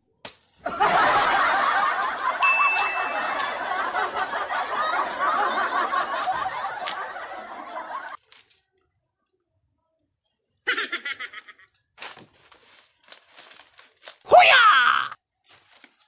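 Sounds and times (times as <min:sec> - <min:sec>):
crowd laughter: 0:00.6 - 0:08.2.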